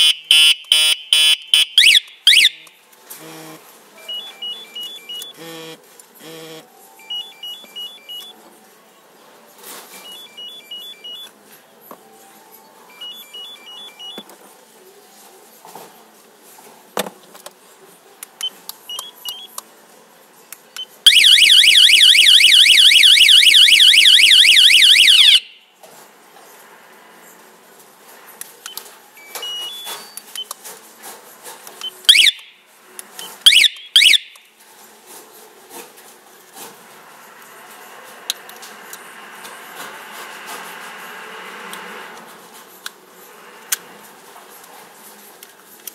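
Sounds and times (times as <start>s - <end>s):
siren chirps: 0.0s - 2.6s, 21.1s - 25.6s, 32.1s - 32.5s, 33.5s - 34.4s
remote beeps: 4.0s - 5.4s, 7.0s - 8.3s, 10.0s - 11.3s, 12.9s - 14.2s, 28.7s - 30.5s
alarm siren warbling: 21.1s - 25.5s.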